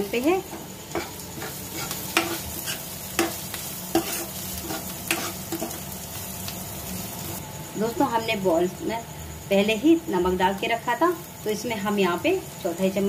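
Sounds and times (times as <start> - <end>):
vegetables sizzling in oil: 0.0 - 13.0
spatula scraping pan: 0.9 - 5.9.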